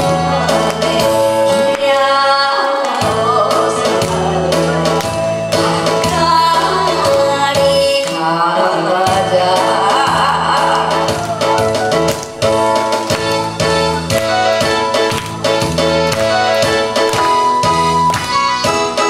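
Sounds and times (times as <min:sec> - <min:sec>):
woman singing into microphone: 0:00.0 - 0:11.6
amplified backing music: 0:00.0 - 0:19.0.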